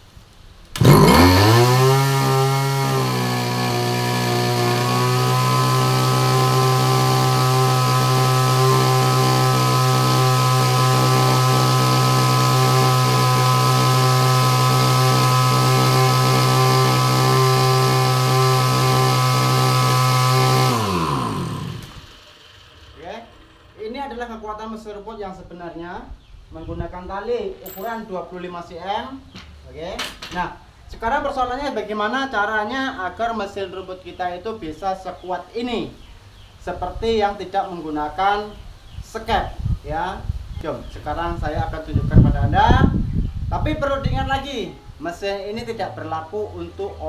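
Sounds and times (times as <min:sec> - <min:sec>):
brush cutter engine revving: 0:00.7 - 0:23.8.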